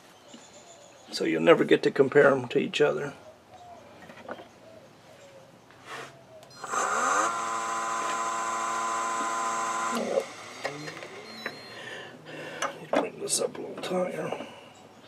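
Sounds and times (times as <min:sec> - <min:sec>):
lathe motor whining: 0:06.6 - 0:11.6.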